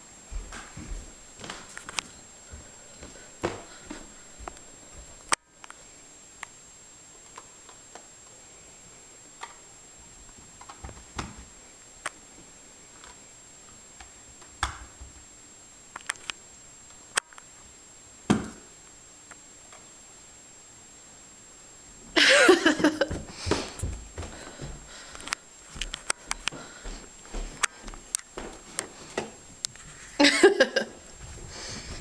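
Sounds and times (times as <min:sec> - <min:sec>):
soft thumps on carpeted stairs: 0:23.0 - 0:24.9.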